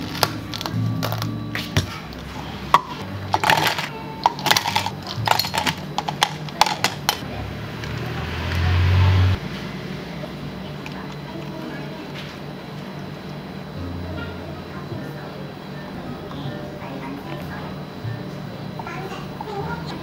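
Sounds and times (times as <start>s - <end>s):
utensils and containers clattering: 0.0s - 7.2s.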